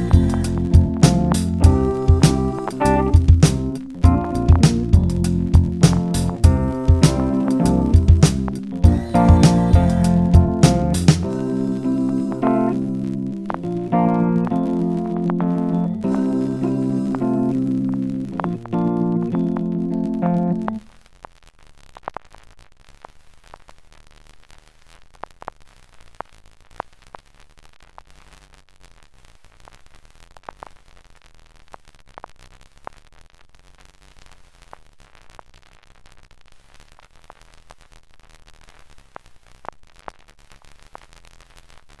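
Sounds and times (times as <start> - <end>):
faint steady hiss: 0.0 - 42.0
static clicks and crackles: 0.0 - 42.0.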